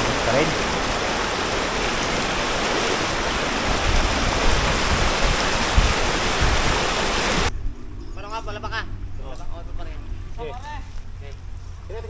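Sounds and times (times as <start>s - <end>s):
rushing splashing water: 0.0s - 7.5s.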